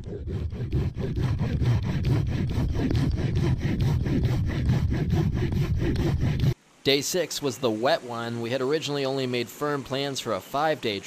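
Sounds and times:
folding saw cutting branch: 0.0s - 6.6s.

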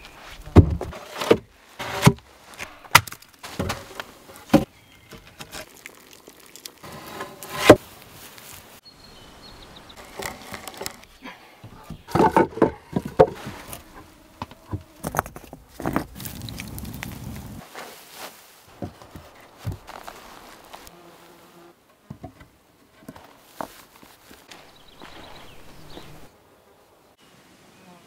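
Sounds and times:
logs and stones knocking: 0.5s - 7.8s, 10.0s - 17.5s, 18.7s - 20.8s.

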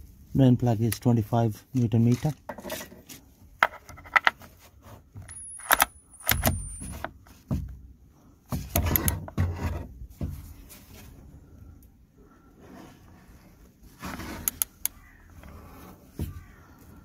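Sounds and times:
socket wrench clicking and rattling: 5.3s - 7.1s.

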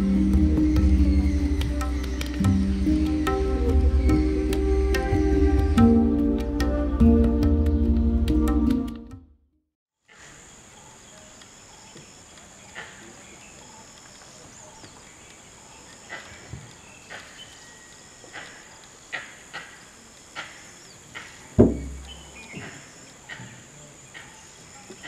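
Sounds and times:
high hum of insects: 10.0s - 25.0s
monkey alarm calls: 10.7s - 25.0s.

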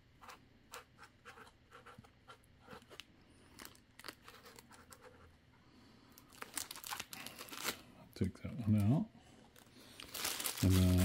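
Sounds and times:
marker scratching on foam: 0.2s - 3.0s.

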